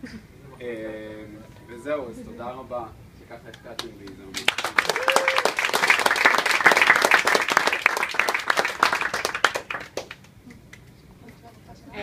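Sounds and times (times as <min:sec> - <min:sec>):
people applauding: 0:03.5 - 0:10.9.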